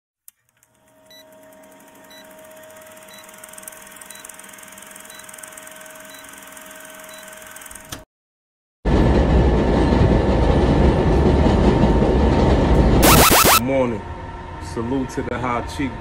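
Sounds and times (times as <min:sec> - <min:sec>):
film projector whirring hum: 0:00.5 - 0:08.0.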